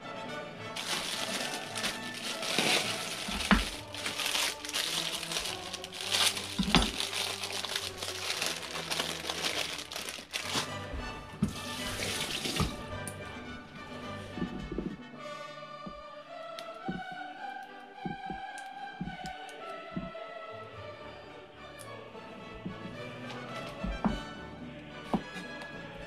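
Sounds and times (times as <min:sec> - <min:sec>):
background music: 0:00.0 - 0:26.0
tap water running into sink: 0:11.4 - 0:12.8.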